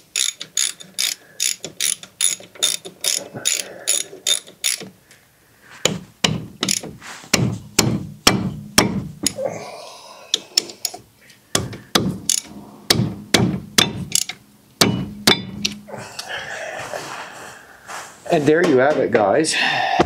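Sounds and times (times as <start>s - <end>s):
ratchet wrench clicking: 0.1s - 4.9s, 6.6s - 6.9s, 12.2s - 12.5s, 13.8s - 14.4s.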